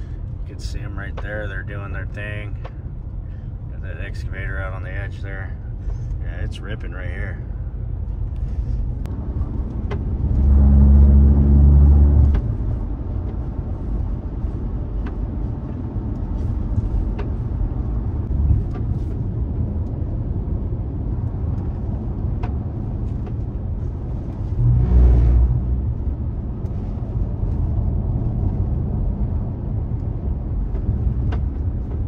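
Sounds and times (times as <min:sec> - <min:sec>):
car cabin road and engine noise: 0:00.0 - 0:32.0.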